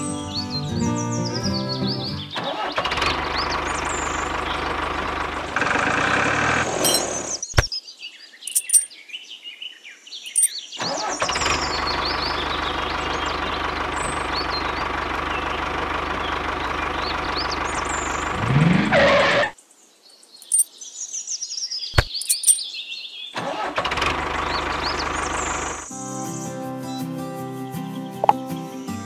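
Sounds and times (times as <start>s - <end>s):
birds chirping: 0.0s - 23.4s, 24.1s - 29.0s
model tractor engine running: 2.4s - 7.7s, 10.8s - 19.4s, 23.4s - 25.9s
sharp clicks: 5.5s - 7.7s, 22.0s - 22.6s.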